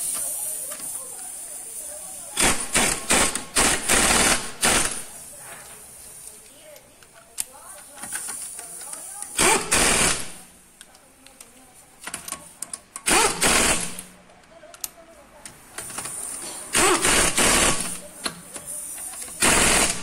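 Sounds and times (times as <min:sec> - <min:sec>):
impact wrench hammering: 0:02.4 - 0:05.0, 0:09.4 - 0:10.4, 0:13.0 - 0:14.0, 0:16.7 - 0:18.4.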